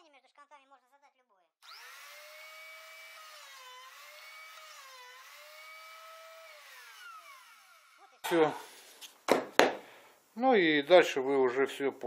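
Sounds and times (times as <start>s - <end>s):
electric router whining: 1.6s - 8.2s.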